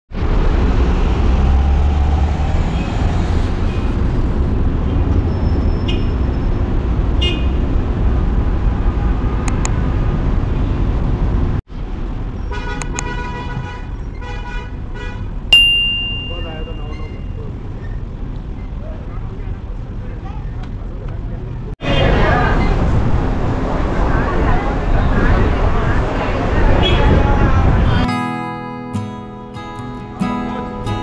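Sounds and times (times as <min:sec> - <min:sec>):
city traffic rumble: 0:00.1 - 0:31.0
car horn toots: 0:07.2 - 0:07.6, 0:12.5 - 0:17.4.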